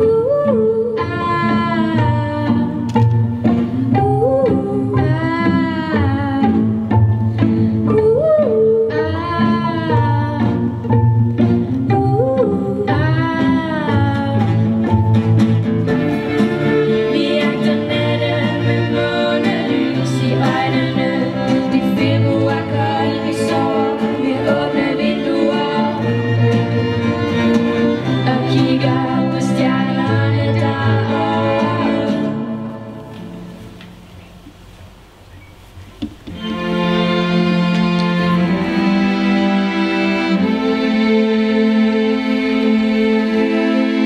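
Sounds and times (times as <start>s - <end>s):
person singing: 0.0s - 10.8s, 11.8s - 14.8s, 16.2s - 33.4s
violins: 0.0s - 34.0s, 36.0s - 44.0s
guitar: 0.0s - 34.6s.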